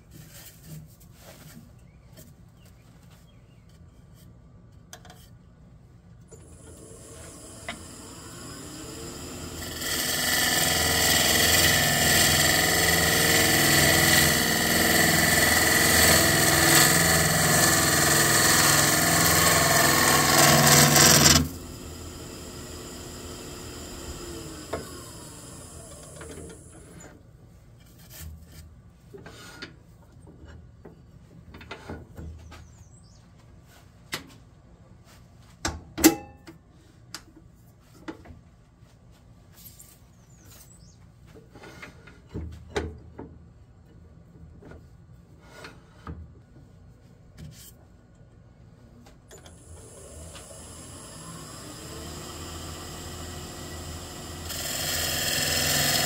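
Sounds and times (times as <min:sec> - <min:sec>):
wood lathe motor: 0:06.4 - 0:27.0, 0:49.5 - 0:56.0.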